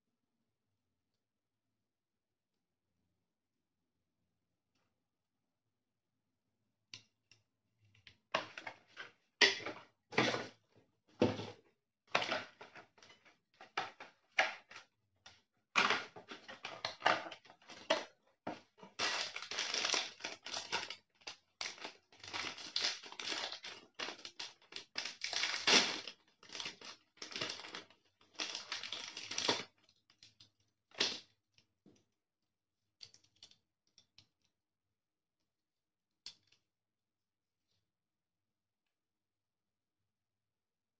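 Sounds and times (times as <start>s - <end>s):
paper packaging rustling: 18.9s - 20.9s, 21.6s - 29.7s.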